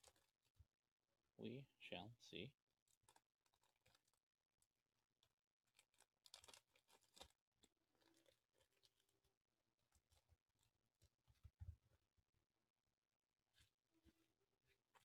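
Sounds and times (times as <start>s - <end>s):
packaging crinkling and rustling: 0.0s - 0.5s, 2.9s - 4.2s, 5.2s - 11.5s.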